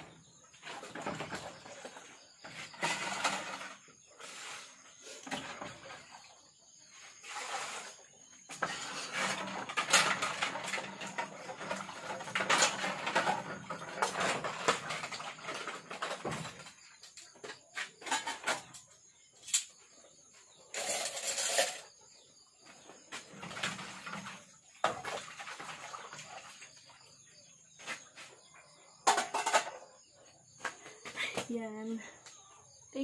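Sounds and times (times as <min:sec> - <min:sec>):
water sloshing and splashing: 0:23.2 - 0:27.4
dishes knocking and clinking: 0:29.0 - 0:29.9.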